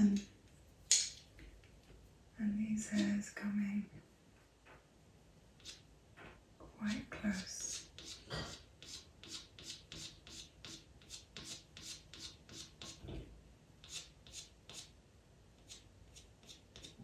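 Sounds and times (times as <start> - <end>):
pencil scratching on paper: 5.6 - 5.8, 6.9 - 13.1, 13.8 - 14.9, 15.6 - 17.0.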